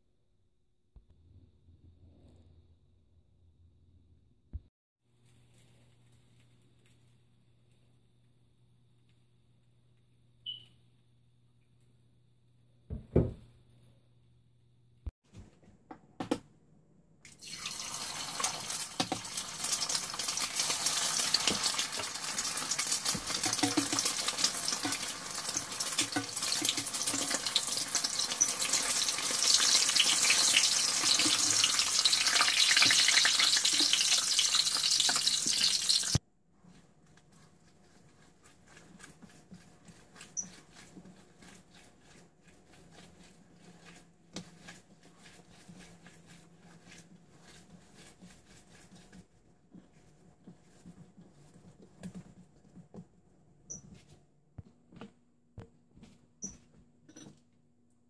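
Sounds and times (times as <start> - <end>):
egg sizzling in hot oil: 17.4 - 36.2.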